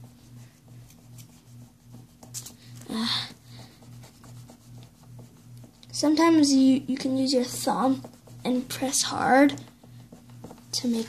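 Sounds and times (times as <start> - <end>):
fingertip rubbing on paper: 0.0 - 2.6, 3.5 - 6.4, 7.0 - 9.2
low pulsing hum: 0.0 - 11.0.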